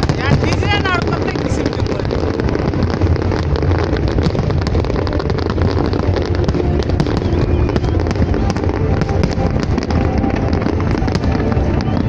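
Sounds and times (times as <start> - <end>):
fireworks barrage: 0.0 - 12.0.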